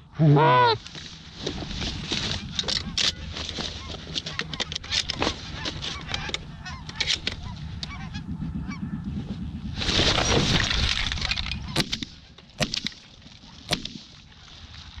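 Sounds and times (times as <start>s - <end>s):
geese honking: 2.1s - 9.3s
loud rustling rush: 7.4s - 11.7s
shotgun shots: 11.8s - 13.1s, 13.7s - 14.1s.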